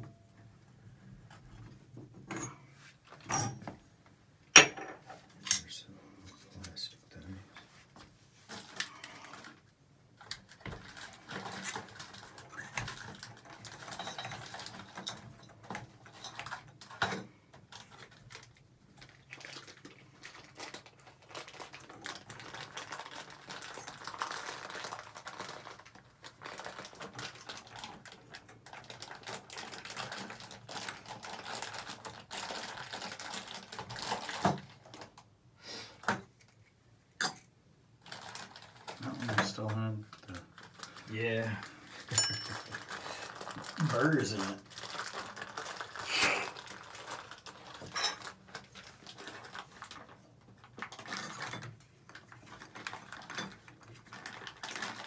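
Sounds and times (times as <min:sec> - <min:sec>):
metal tools clattering: 0:42.1 - 0:42.8.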